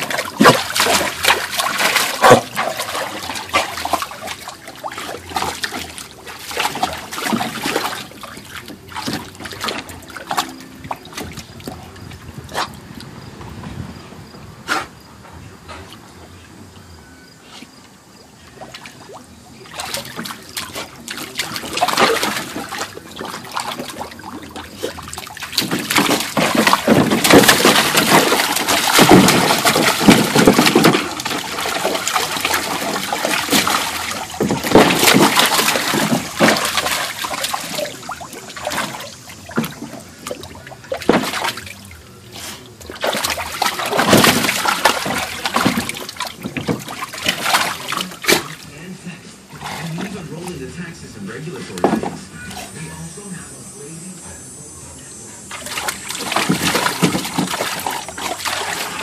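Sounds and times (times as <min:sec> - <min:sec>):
water splashing in plastic pool: 0:00.0 - 0:13.3, 0:18.4 - 0:59.0.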